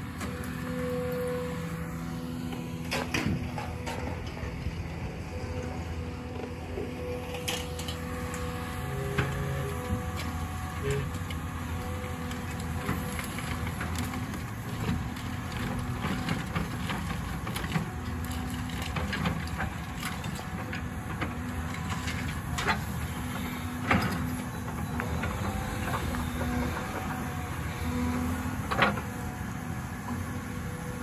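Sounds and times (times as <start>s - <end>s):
excavator diesel engine running: 0.0s - 31.0s.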